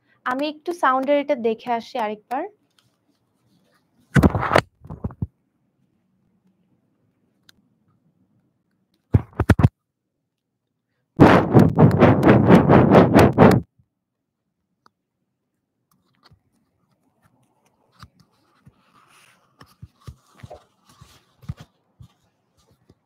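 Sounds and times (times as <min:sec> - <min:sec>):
microphone handling scratches: 0:04.1 - 0:05.3, 0:09.1 - 0:09.7, 0:11.2 - 0:13.7.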